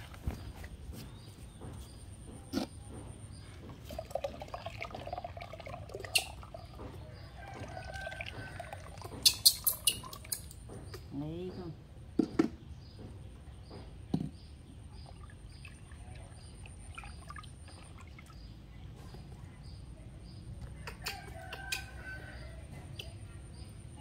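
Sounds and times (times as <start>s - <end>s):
water pouring into basin: 3.8s - 10.4s, 15.0s - 18.4s.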